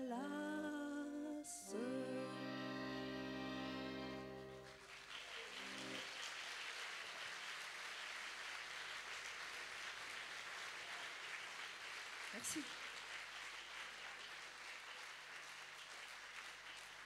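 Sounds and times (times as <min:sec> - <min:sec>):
accordion chord: 0:00.4 - 0:04.9, 0:05.5 - 0:06.1
audience applauding: 0:04.4 - 0:17.0.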